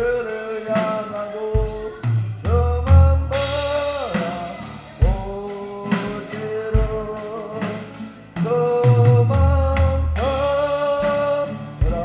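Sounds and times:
acoustic guitar strumming: 0:00.0 - 0:12.0
electronic drum kit: 0:00.0 - 0:12.0
man singing: 0:00.0 - 0:12.0.

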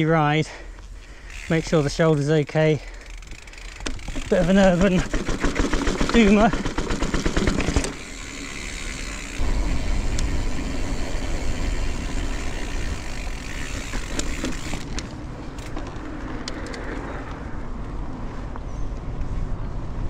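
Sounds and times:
bike tyre noise: 0:00.0 - 0:20.0
light clicks from bike: 0:00.7 - 0:05.4, 0:10.1 - 0:10.4, 0:12.6 - 0:19.4.

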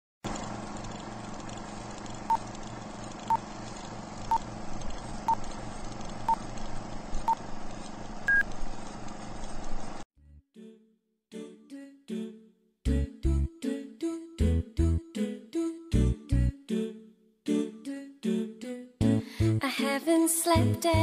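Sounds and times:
film crackle and hiss: 0:00.3 - 0:10.0.

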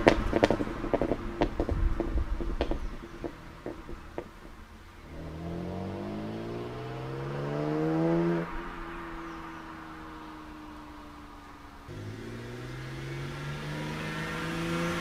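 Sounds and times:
sharp exhaust pops: 0:00.0 - 0:05.5
car engine accelerating away: 0:05.0 - 0:11.2, 0:11.8 - 0:15.0.

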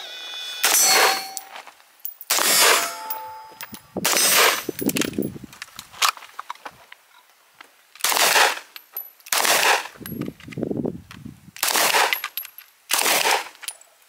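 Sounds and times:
light metallic tings: 0:00.5 - 0:05.2
gunshots: 0:00.6 - 0:01.5, 0:02.3 - 0:03.3, 0:08.0 - 0:08.6, 0:09.3 - 0:09.9, 0:11.6 - 0:12.2, 0:12.9 - 0:13.5.

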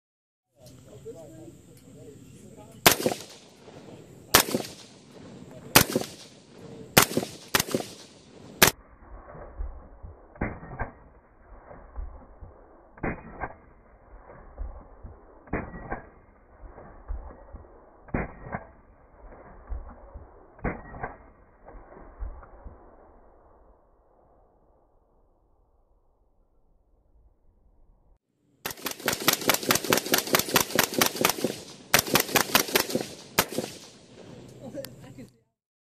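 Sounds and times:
suppressed rifle shots: 0:02.8 - 0:23.3, 0:28.6 - 0:34.3.

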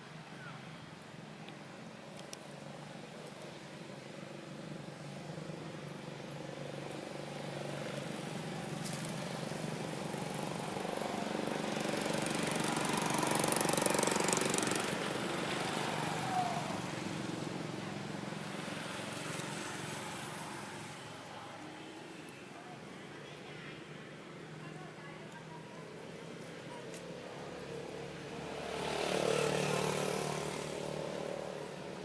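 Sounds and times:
motor vehicle engine running: 0:01.5 - 0:22.1.

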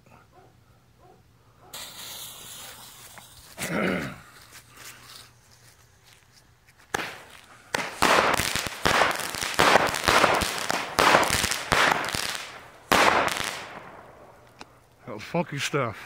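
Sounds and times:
fireworks shots with hissing tails: 0:01.7 - 0:06.1, 0:06.8 - 0:14.8.

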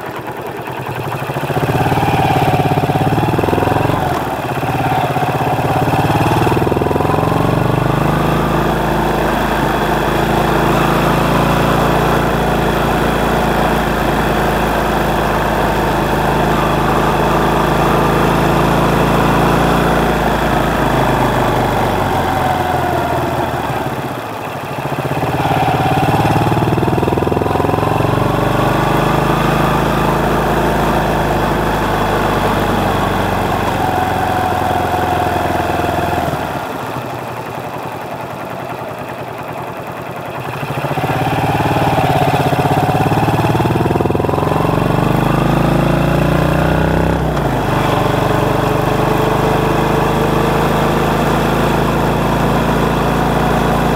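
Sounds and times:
motorcycle engine revving: 0:00.0 - 0:53.9.

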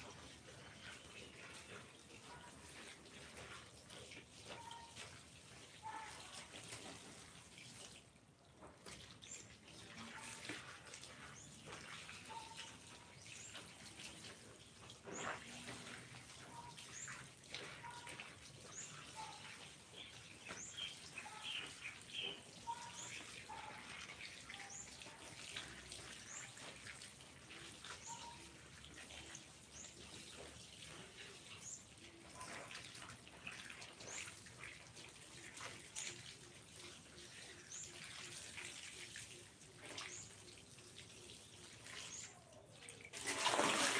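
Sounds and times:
hose water running into basin: 0:00.0 - 0:43.9
laundry splashing and sloshing: 0:00.0 - 0:43.9
bird chirping: 0:18.7 - 0:23.7, 0:28.0 - 0:28.5.

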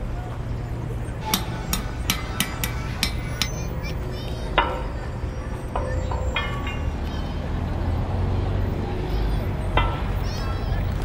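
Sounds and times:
hammer striking metal on anvil: 0:01.2 - 0:08.1, 0:09.7 - 0:10.4.

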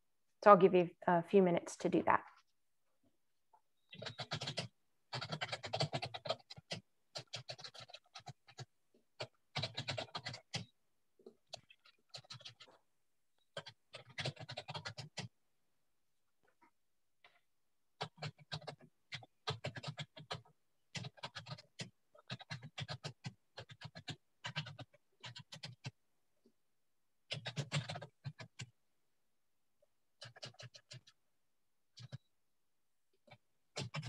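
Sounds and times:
keyboard typing: 0:03.9 - 0:12.8, 0:13.4 - 0:15.3, 0:18.0 - 0:26.0, 0:27.3 - 0:28.7, 0:30.2 - 0:31.2, 0:31.9 - 0:32.2.

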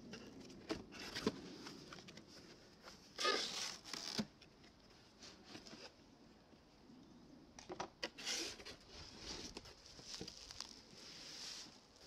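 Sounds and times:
cardboard scrape: 0:08.2 - 0:10.5.

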